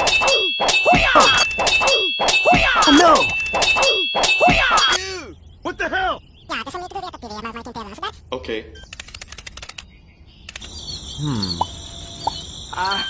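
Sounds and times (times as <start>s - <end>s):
metallic digging clanks: 0.0s - 5.0s
ringing tone: 0.0s - 5.0s.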